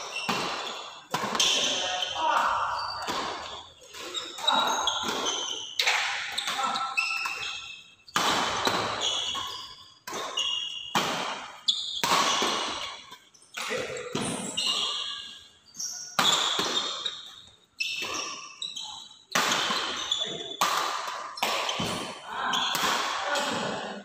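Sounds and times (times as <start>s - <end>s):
racket hitting shuttlecock: 0.0s - 15.2s, 16.0s - 17.3s, 19.3s - 23.8s
shoes squeaking on court floor: 0.0s - 23.8s.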